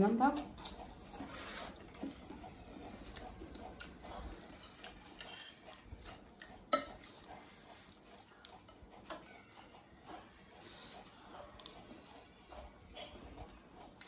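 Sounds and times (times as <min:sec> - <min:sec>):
spoons clinking on glass plates: 0:06.7 - 0:07.0.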